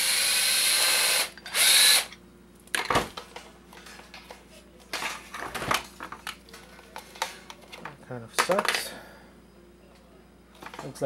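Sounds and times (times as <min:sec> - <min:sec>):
power drill whirring: 0:00.0 - 0:02.2.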